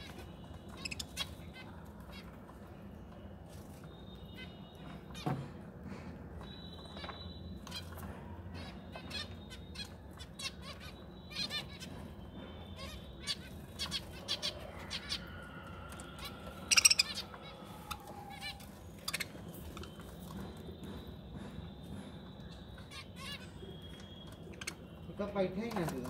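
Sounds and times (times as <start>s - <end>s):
budgerigars chirping: 0.0s - 2.3s, 16.2s - 20.1s.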